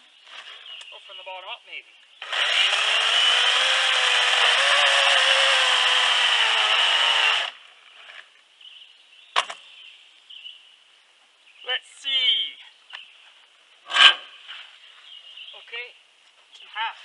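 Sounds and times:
chainsaw cutting log: 0:02.2 - 0:07.6.

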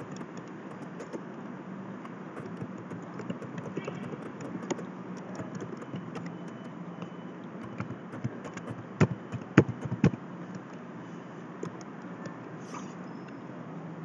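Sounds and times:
keyboard and mouse clicks: 0:00.0 - 0:01.2, 0:02.0 - 0:06.7, 0:07.6 - 0:10.2, 0:11.6 - 0:11.9
steady low hum: 0:00.0 - 0:14.0.

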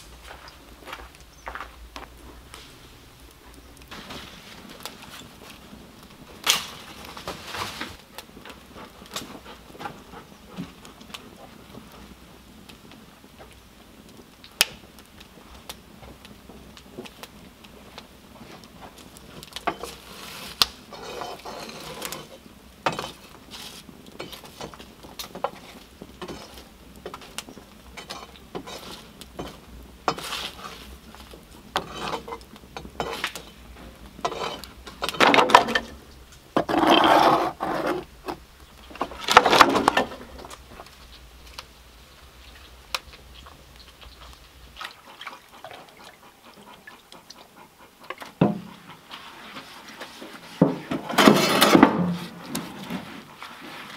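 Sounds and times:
rasping sounds: 0:36.6 - 0:38.1.

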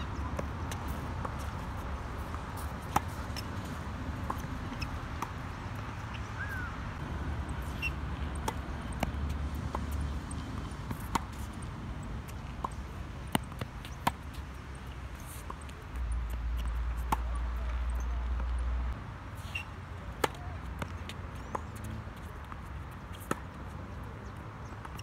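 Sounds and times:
tennis ball bouncing: 0:00.1 - 0:18.7, 0:19.5 - 0:25.0
racket striking tennis ball: 0:00.3 - 0:06.7, 0:07.5 - 0:14.2.

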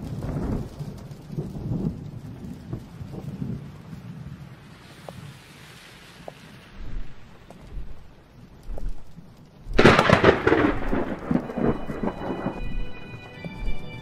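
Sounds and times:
thunderclap rumbling: 0:00.0 - 0:05.7, 0:06.4 - 0:14.0
faint rain hiss: 0:00.0 - 0:14.0
low thuds: 0:06.8 - 0:14.0.

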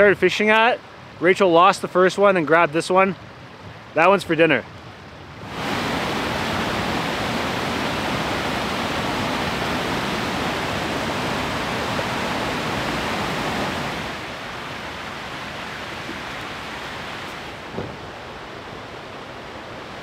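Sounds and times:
waterfall rushing: 0:05.4 - 0:20.0.

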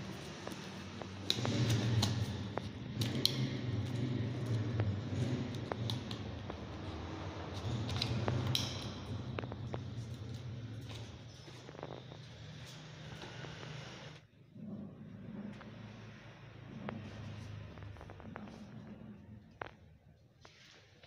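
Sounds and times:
steady low hum: 0:00.0 - 0:20.2.

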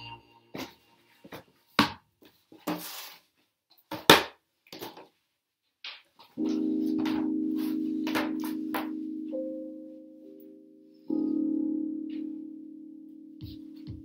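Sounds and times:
electronic keyboard chord: 0:00.0 - 0:01.4, 0:06.4 - 0:14.0.

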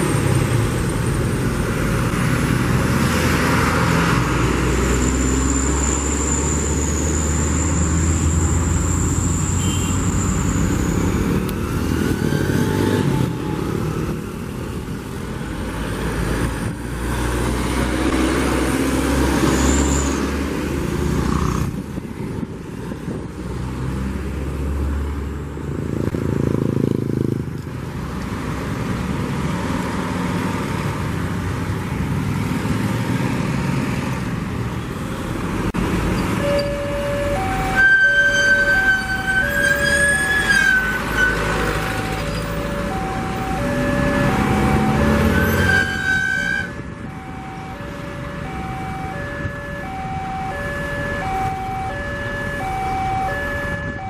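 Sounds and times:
traffic engines and tyre noise: 0:00.0 - 0:54.0
two-tone crossing warning alarm: 0:36.2 - 0:54.0
high whistle-like tone: 0:37.6 - 0:41.5.

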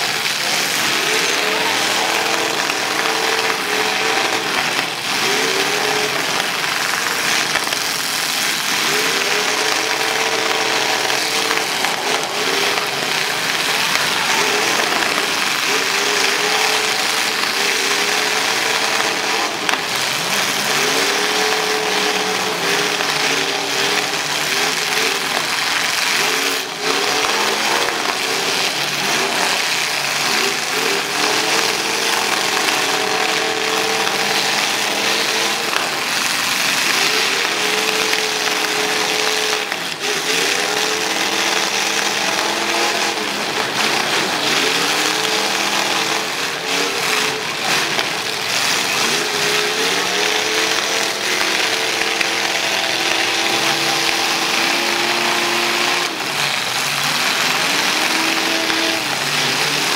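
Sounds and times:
car engines revving: 0:00.0 - 0:59.9.

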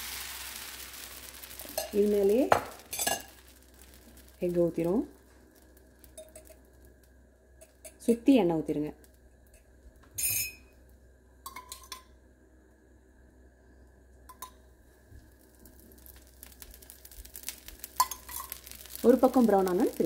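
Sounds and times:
oil sizzling on hot griddle: 0:00.0 - 0:10.5, 0:14.3 - 0:20.0
metal spoon clinking on steel cup: 0:10.2 - 0:10.6.

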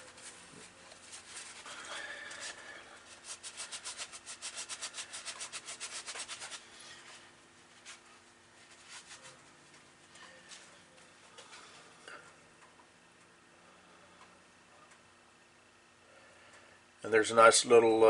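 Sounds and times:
hand rubbing on brass part: 0:00.0 - 0:07.2.

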